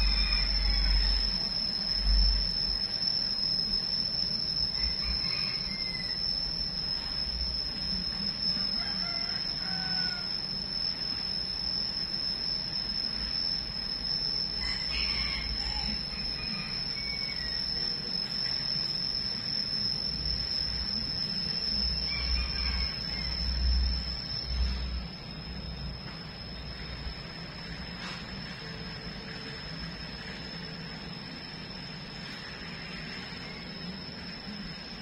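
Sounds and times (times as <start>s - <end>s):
high-pitched insect drone: 0.0s - 35.0s.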